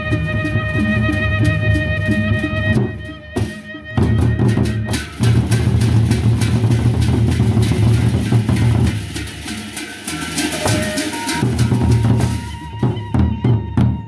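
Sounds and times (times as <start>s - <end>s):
barrel drums beaten with sticks: 2.8s - 14.0s.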